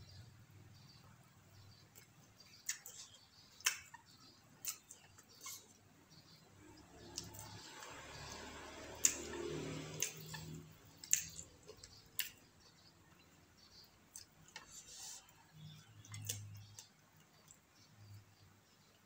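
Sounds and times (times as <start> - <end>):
quiet chewing: 1.8 - 5.9, 8.8 - 17.8.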